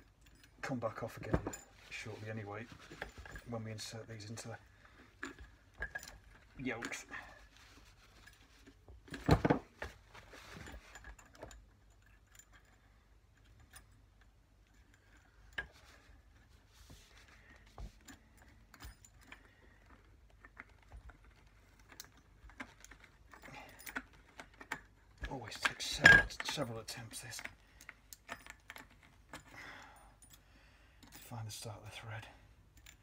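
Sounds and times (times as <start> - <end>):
metal parts clicking and knocking: 0.0 - 16.5, 17.5 - 31.4, 32.6 - 33.0.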